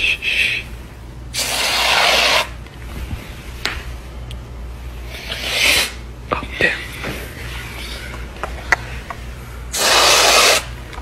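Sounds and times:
aerosol can spraying: 9.8s - 10.7s.

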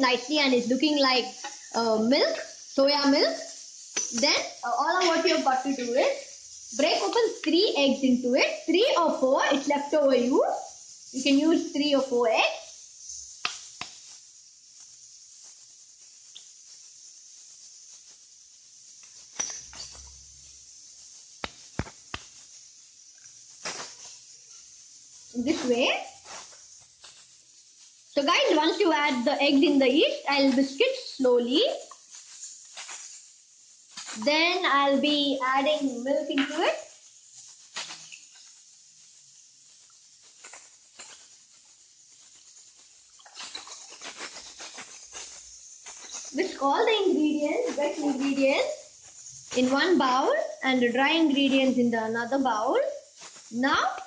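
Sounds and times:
faint steady hiss: 0.0s - 54.0s.

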